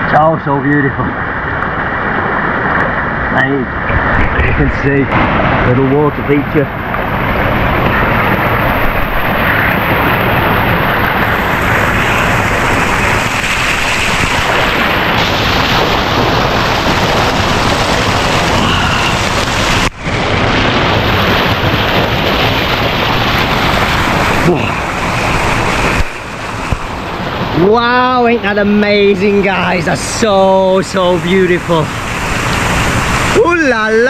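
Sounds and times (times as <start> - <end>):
water pouring and splashing: 3.9 - 34.0.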